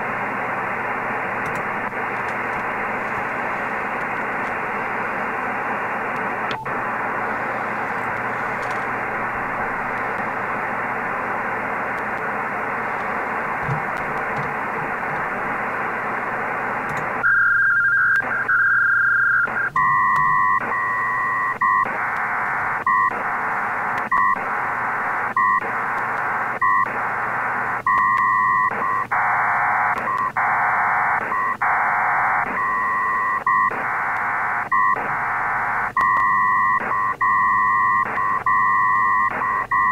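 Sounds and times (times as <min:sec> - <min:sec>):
radio receiver hiss: 0:00.0 - 0:17.4, 0:19.4 - 0:37.2
data signal bursts: 0:26.6 - 0:39.9.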